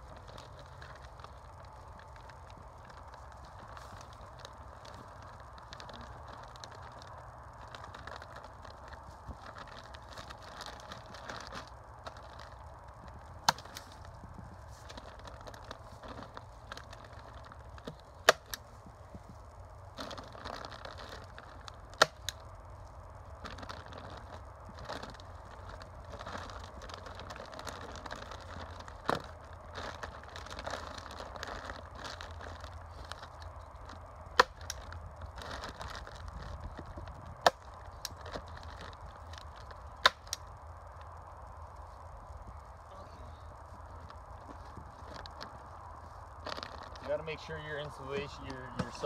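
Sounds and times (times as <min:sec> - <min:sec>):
plastic sheeting rustling: 0:00.0 - 0:22.5, 0:23.3 - 0:40.5, 0:42.9 - 0:49.0.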